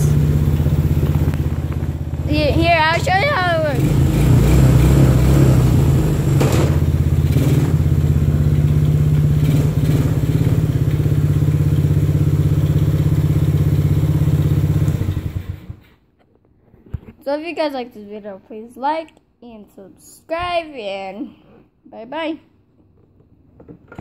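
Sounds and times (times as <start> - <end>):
small engine idling: 0.0 - 16.0.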